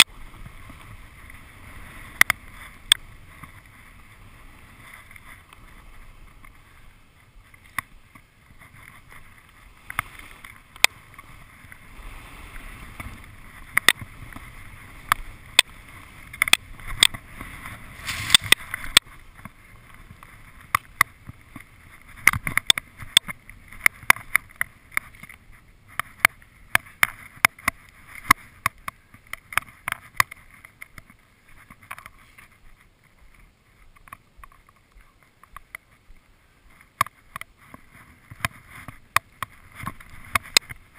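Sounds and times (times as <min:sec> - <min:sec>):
ski clicks and knocks: 0:00.0 - 0:40.9
skis swishing on snow: 0:00.1 - 0:24.8.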